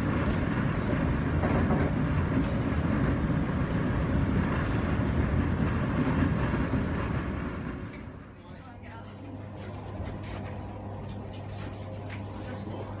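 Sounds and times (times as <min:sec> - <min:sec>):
train running noise inside carriage: 0:00.0 - 0:10.5.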